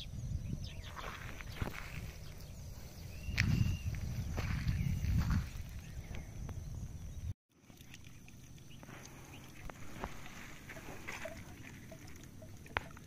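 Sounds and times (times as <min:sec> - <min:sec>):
low rumble on microphone: 0:00.0 - 0:07.3.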